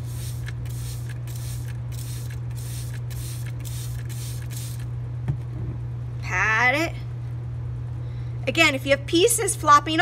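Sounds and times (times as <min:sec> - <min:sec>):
spray bottle hissing spritzes: 0:00.0 - 0:04.8
steady low hum: 0:00.0 - 0:10.0.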